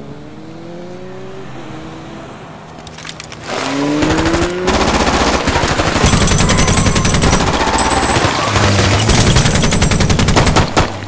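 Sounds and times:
car engine revving: 0.0s - 10.4s
machine gun automatic bursts: 4.0s - 11.0s.

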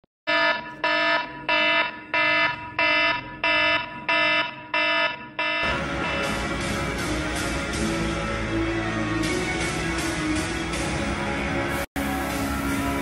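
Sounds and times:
buzzy electronic alarm beeps: 0.3s - 6.7s
music: 5.6s - 13.0s.

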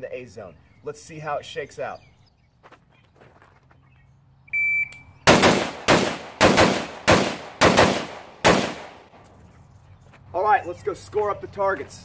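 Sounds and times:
shot timer beep: 4.5s - 5.1s
rifle shots echoing: 5.3s - 9.1s.

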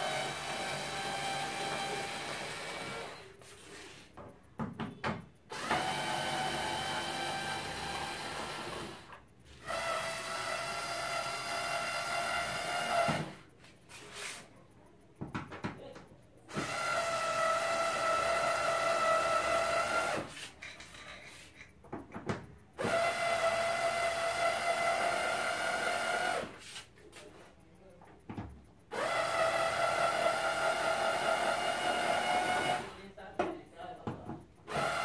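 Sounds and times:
electric screwdriver whine: 0.0s - 3.3s, 5.5s - 13.4s, 16.5s - 20.3s, 22.8s - 26.6s, 28.9s - 33.0s, 34.7s - 35.0s
small clicks and knocks: 13.2s - 16.6s, 20.3s - 22.8s, 26.6s - 28.9s.

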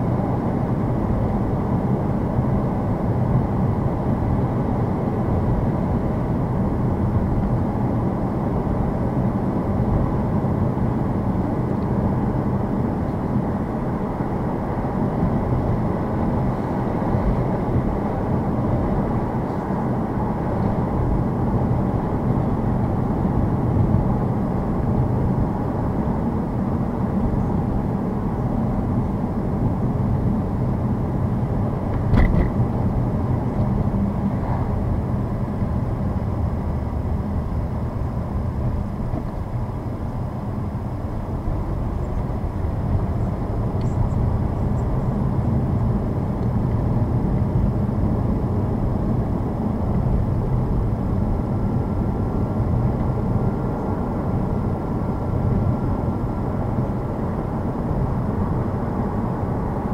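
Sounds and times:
brief knock: 32.0s - 32.5s.

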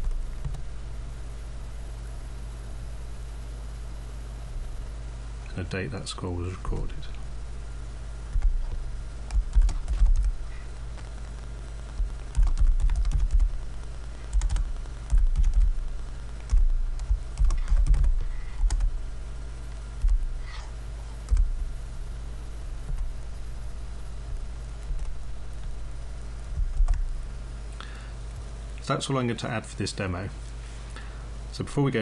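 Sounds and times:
steady low hum: 0.0s - 32.0s
typing on computer keyboard: 9.3s - 10.4s, 12.3s - 13.5s, 14.3s - 15.7s, 16.4s - 18.9s
dull low thuds: 21.3s - 21.8s, 24.2s - 25.9s, 26.5s - 27.2s.

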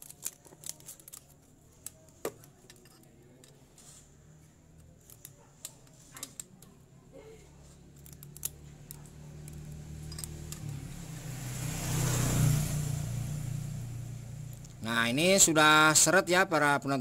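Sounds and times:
passing motor vehicle: 6.8s - 16.7s
metallic tool clicks and taps: 8.0s - 10.8s.

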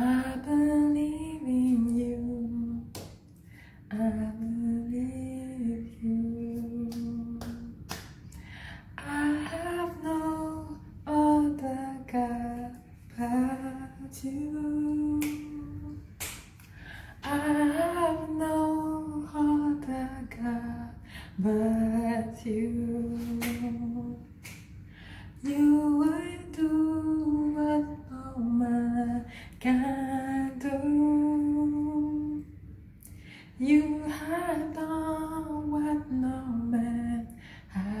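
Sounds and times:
woman singing unaccompanied: 0.0s - 3.0s, 3.9s - 8.1s, 8.9s - 16.1s, 17.2s - 24.4s, 25.4s - 32.5s, 33.6s - 38.0s
singer breathing: 8.3s - 9.0s, 16.7s - 17.2s, 21.0s - 21.4s, 24.8s - 25.4s.

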